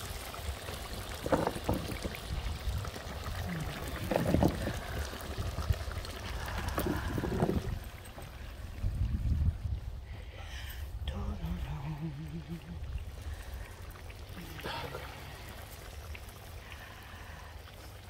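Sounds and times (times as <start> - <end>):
steady low rumble: 2.2 - 15.5.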